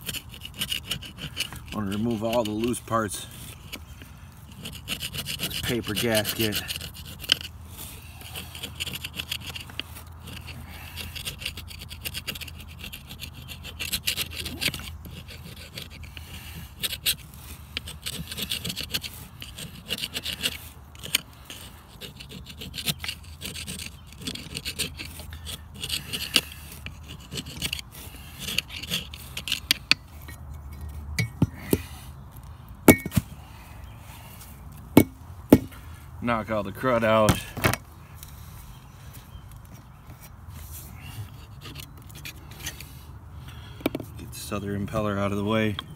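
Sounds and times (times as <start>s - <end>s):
screwdriver scraping gasket off metal: 0.0s - 31.8s.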